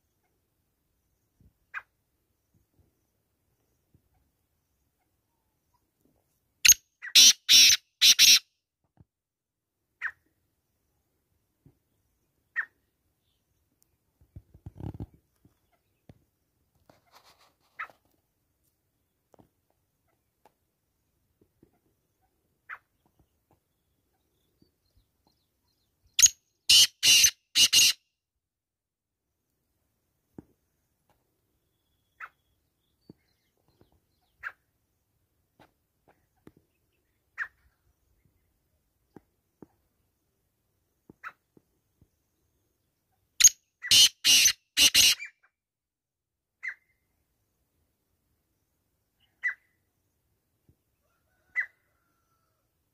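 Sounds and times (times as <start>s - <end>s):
bird harsh scratchy calls: 7.0s - 8.4s, 16.9s - 18.0s, 26.2s - 28.0s, 43.4s - 45.3s.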